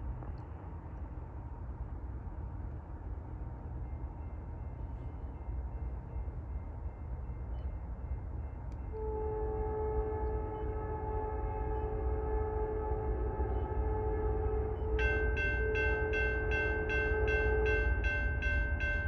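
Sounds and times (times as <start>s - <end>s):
freight train rumble: 0.0s - 19.0s
locomotive air horn chord: 8.9s - 18.0s.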